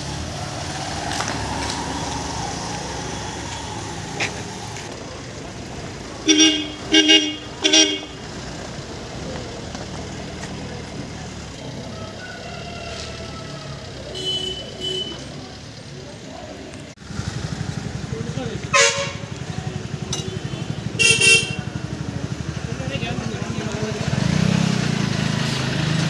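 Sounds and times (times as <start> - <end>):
street traffic noise: 0.0 - 26.0
vehicle horn honking: 6.3 - 8.2, 14.1 - 15.3, 18.7 - 19.4, 20.0 - 21.8.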